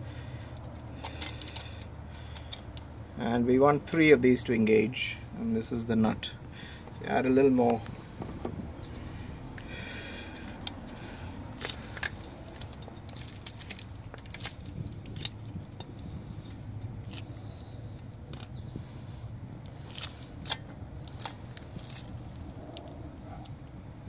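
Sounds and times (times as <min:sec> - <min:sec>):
grease tube clicks and crackles: 0:00.0 - 0:02.9, 0:11.6 - 0:16.1, 0:19.6 - 0:23.8
steady low hum: 0:00.0 - 0:24.0.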